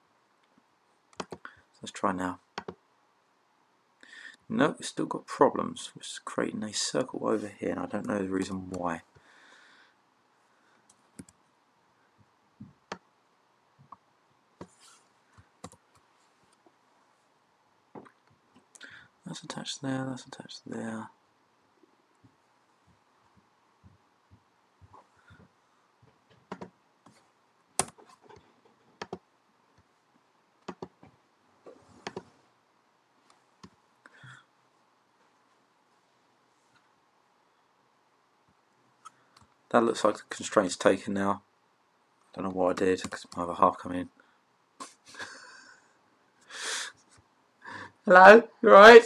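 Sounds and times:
computer mouse clicking: 0:01.1 - 0:01.5, 0:02.6 - 0:02.8, 0:10.9 - 0:11.4, 0:26.4 - 0:27.2, 0:27.8 - 0:28.4, 0:29.0 - 0:29.2, 0:30.6 - 0:31.0, 0:32.0 - 0:32.3.

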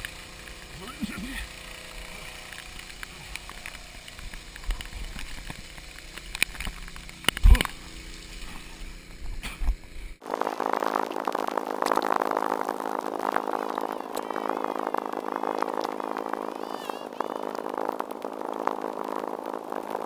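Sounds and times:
dense steady sound: 0:00.0 - 0:20.0.

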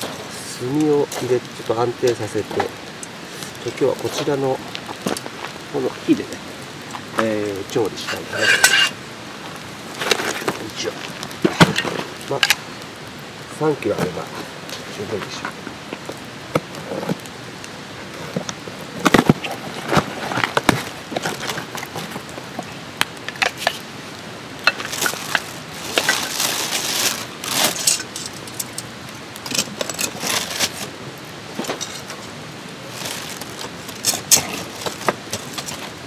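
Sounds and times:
wood fire crackling and popping: 0:00.0 - 0:36.0
plastic bag rustling: 0:08.0 - 0:12.5, 0:18.0 - 0:22.6, 0:24.6 - 0:36.0
charcoal pieces knocking together: 0:24.6 - 0:30.8, 0:33.0 - 0:36.0.

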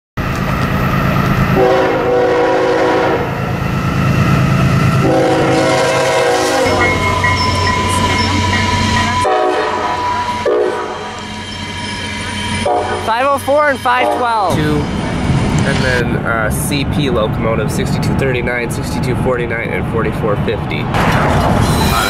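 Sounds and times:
diesel engine running: 0:00.2 - 0:09.5
locomotive horn blasts: 0:01.5 - 0:03.4, 0:05.0 - 0:11.4, 0:12.5 - 0:14.5.

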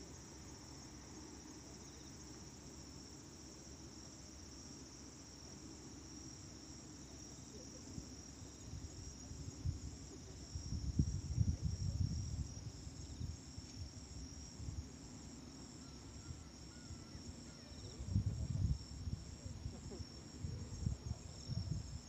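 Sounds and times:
crickets chirring: 0:00.0 - 0:22.0
wind buffeting microphone: 0:08.7 - 0:14.9, 0:17.8 - 0:22.0.

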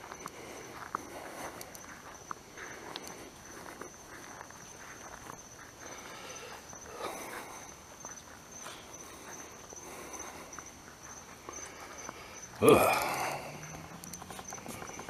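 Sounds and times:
night insects trilling: 0:00.0 - 0:15.0.

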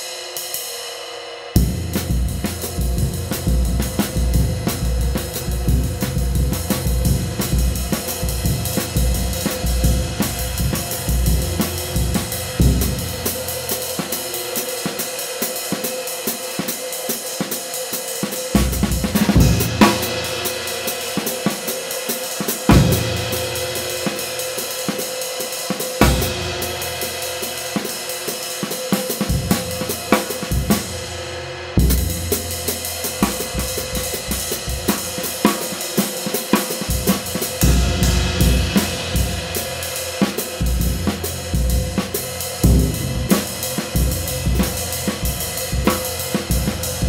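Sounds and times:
ride cymbal played with drumstick: 0:00.0 - 0:47.0
bass drum: 0:01.6 - 0:14.3, 0:18.6 - 0:20.6, 0:26.0 - 0:27.2, 0:29.3 - 0:31.1, 0:31.8 - 0:35.7, 0:36.8 - 0:47.0
snare drum: 0:01.7 - 0:31.0, 0:31.8 - 0:47.0.

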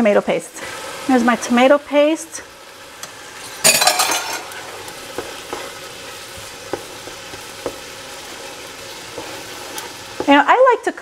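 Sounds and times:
sauce sizzling in a pot: 0:00.0 - 0:11.0
wooden spoon knocking on pot: 0:06.6 - 0:07.9, 0:10.1 - 0:10.5.

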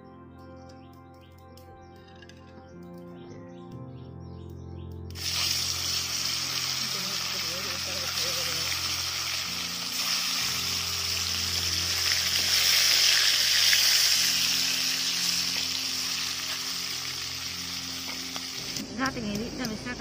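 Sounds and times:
eel sizzling in hot oil: 0:05.2 - 0:18.8.

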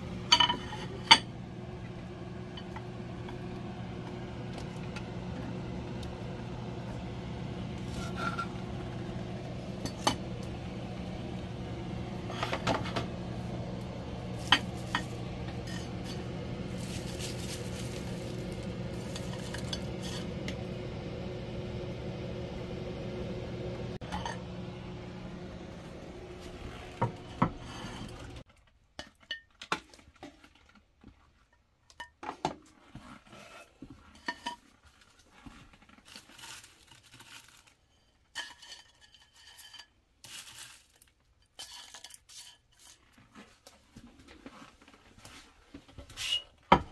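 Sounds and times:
steady low hum: 0:00.0 - 0:28.4.

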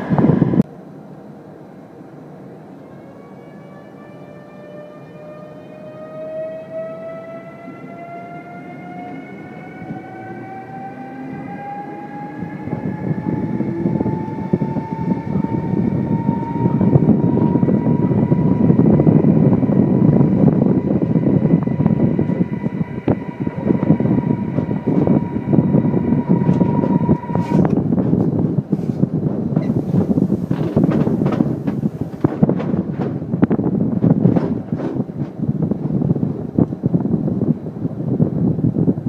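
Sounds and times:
electric train drive whine: 0:00.0 - 0:00.7, 0:02.1 - 0:28.7
wheels rumbling on rails: 0:00.0 - 0:39.0.

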